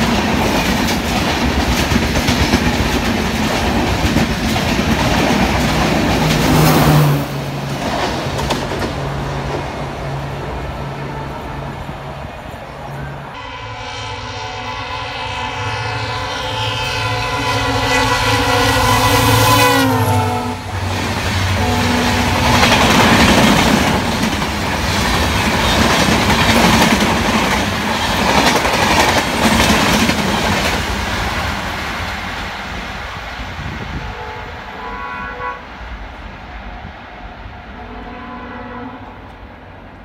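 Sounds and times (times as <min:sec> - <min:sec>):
train coaches clattering over rails: 0:00.0 - 0:11.0, 0:20.7 - 0:33.1
locomotive horn blaring: 0:10.3 - 0:12.0, 0:12.9 - 0:22.8, 0:33.9 - 0:35.8, 0:37.7 - 0:39.4.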